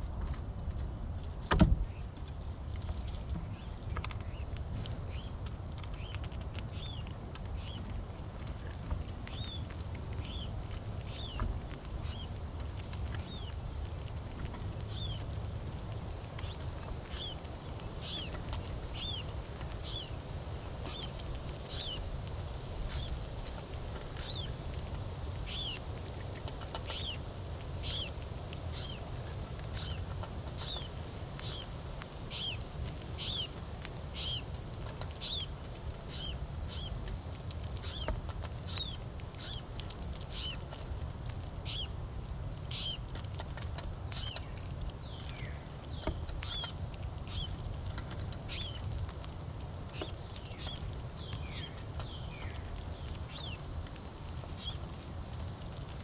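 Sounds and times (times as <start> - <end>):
steady low rumble: 0.0 - 56.0.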